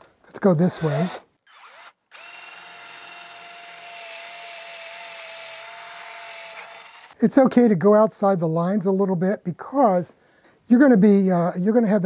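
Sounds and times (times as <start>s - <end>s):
cordless drill whining: 0.8s - 7.2s.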